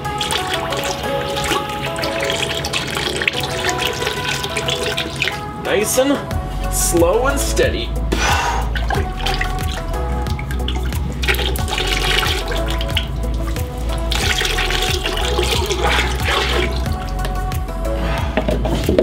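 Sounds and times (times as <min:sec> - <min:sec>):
liquid glaze pouring and splashing: 0:00.0 - 0:05.5, 0:08.7 - 0:17.7
background music with steady beat: 0:00.0 - 0:19.0.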